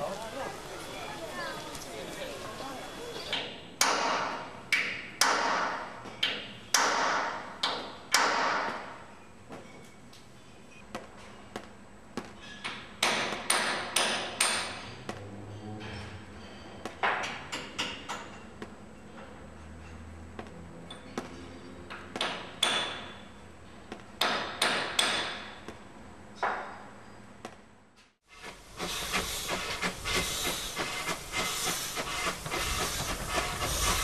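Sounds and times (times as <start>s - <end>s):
hammer on metal: 3.3s - 8.9s, 12.6s - 14.9s, 21.2s - 23.2s, 24.2s - 25.6s.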